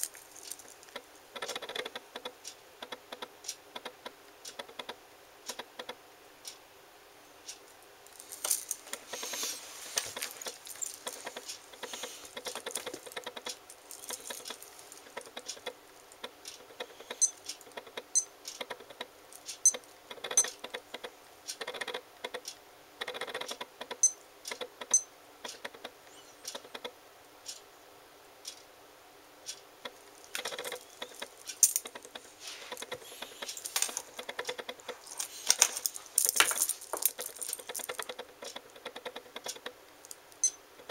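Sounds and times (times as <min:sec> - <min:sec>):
metal watch bracelet rattling: 0:00.0 - 0:00.9, 0:08.1 - 0:15.6, 0:30.2 - 0:38.2.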